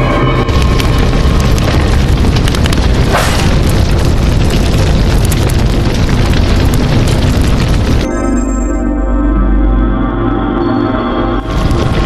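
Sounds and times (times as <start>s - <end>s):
rumbling with electric crackling: 0.0s - 8.8s, 11.4s - 12.0s.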